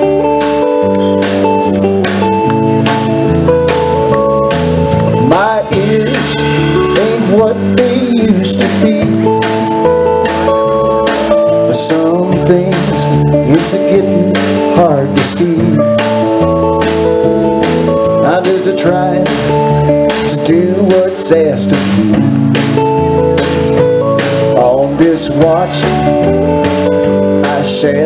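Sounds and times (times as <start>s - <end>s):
live rock band playing: 0.0s - 28.0s
man singing: 5.1s - 9.7s, 11.4s - 16.3s, 18.0s - 22.5s, 24.5s - 26.3s, 27.2s - 28.0s.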